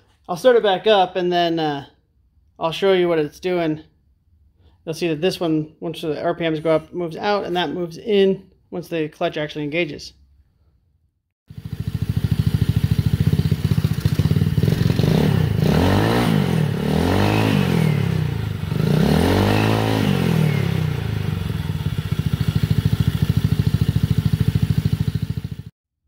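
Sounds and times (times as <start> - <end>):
scooter engine idling: 11.5 - 25.7
throttle blips revving engine: 11.5 - 25.7.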